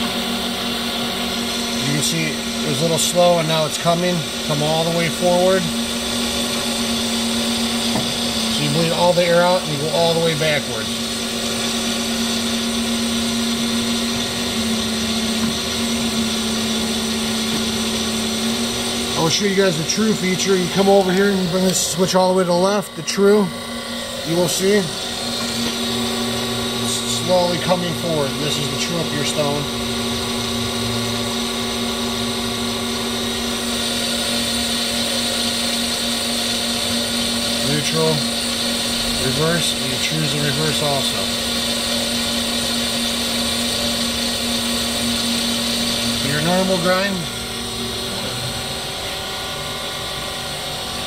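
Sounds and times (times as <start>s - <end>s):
surface grinder humming: 0.0s - 51.0s.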